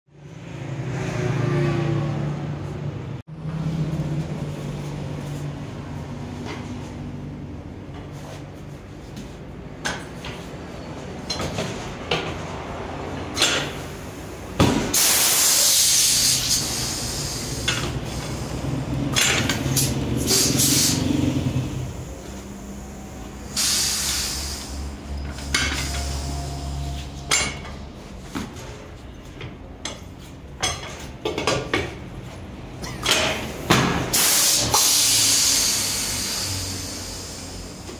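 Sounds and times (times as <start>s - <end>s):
compressed air hiss: 14.8s - 27.0s, 34.0s - 37.9s
low hum: 24.3s - 28.4s.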